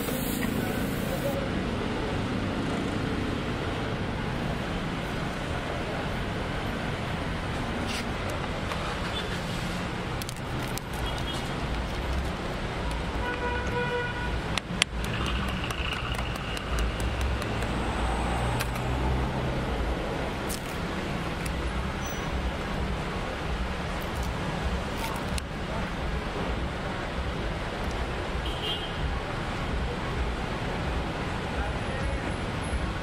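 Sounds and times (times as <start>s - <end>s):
road traffic passing: 0.0s - 33.0s
car horn toot: 13.2s - 14.4s.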